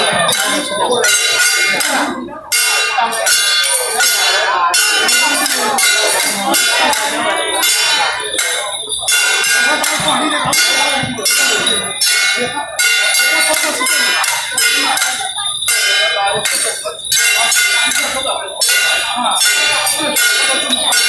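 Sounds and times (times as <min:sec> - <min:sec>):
gongs and cymbals struck: 0:00.0 - 0:21.0.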